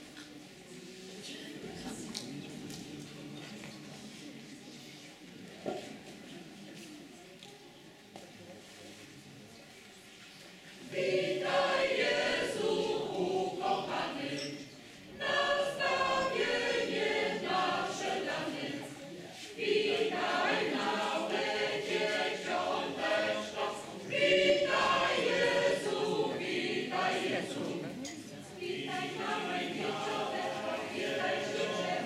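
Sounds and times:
mixed choir singing: 10.7 - 32.0.

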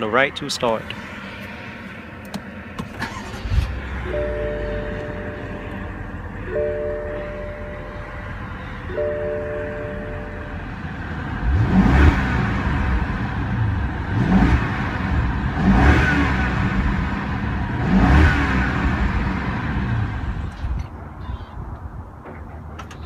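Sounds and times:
car engine idling: 0.0 - 23.0
car engine revving: 0.7 - 20.9.

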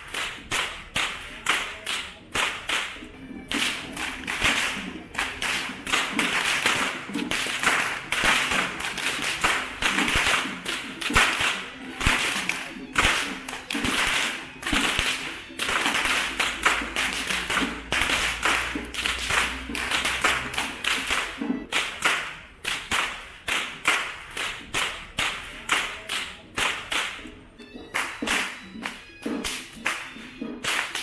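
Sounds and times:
whips cracking: 0.0 - 27.2, 30.6 - 31.0.

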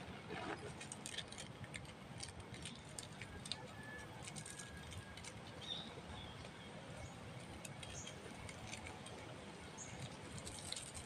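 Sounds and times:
faint outdoor background: 0.0 - 11.0
faint thin whistle: 3.6 - 5.1.

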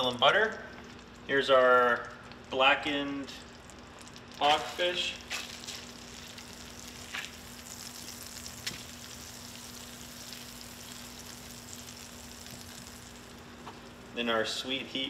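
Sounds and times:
fish frying in a pan: 2.4 - 14.2.

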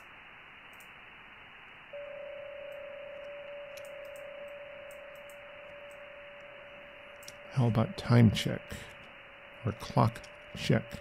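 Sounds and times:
radio receiver hiss: 0.0 - 11.0
faint clicks: 0.7 - 1.0, 3.2 - 4.3, 7.1 - 7.4
steady digital signal tone: 1.9 - 11.0.

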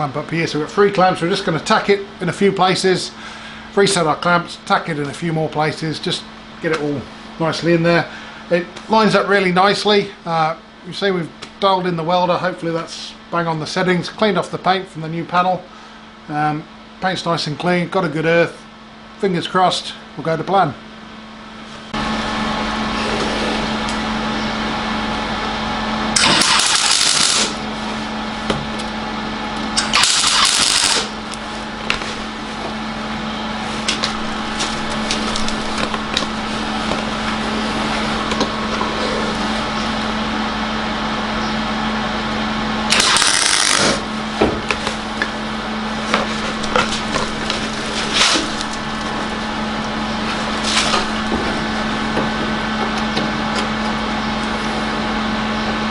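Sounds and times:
welder humming: 21.8 - 55.9
welding arc crackle and hiss: 26.2 - 27.6, 29.8 - 32.4, 42.9 - 44.1.

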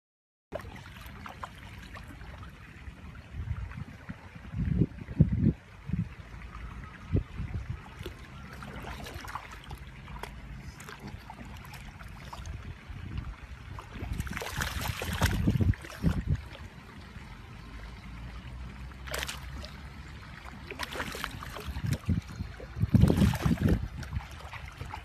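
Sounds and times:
paws splashing in water: 7.9 - 12.7, 13.7 - 16.6, 19.0 - 19.8, 20.6 - 25.0.

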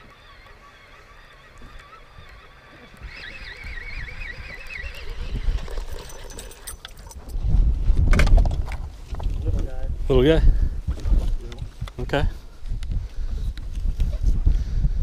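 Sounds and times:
waterfowl calling: 0.0 - 6.3.

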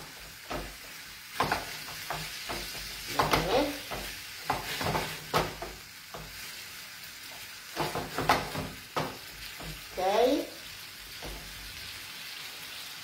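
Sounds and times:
spoon scraping and knocking pan: 0.0 - 6.6, 7.2 - 9.9
food sizzling in a frying pan: 0.0 - 13.0.

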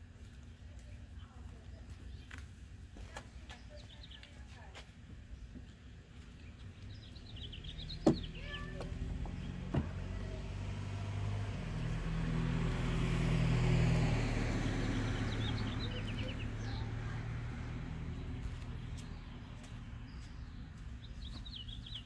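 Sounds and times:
birds chirping faintly: 0.0 - 12.8, 13.5 - 22.0
car driving past: 7.2 - 20.1.

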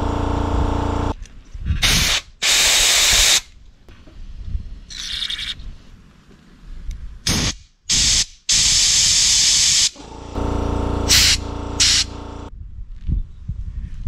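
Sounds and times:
steady hum: 0.0 - 1.2, 10.0 - 12.5
compressed air blasts: 1.8 - 3.5, 7.2 - 12.5.

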